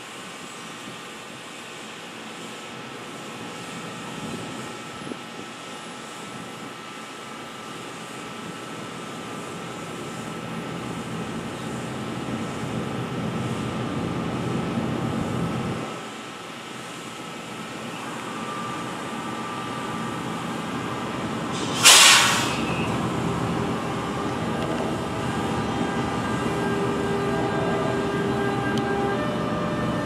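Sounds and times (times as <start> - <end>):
electric locomotive humming: 0.0 - 30.0
loud air hiss: 18.2 - 28.1
whining electrical tones: 22.5 - 30.0.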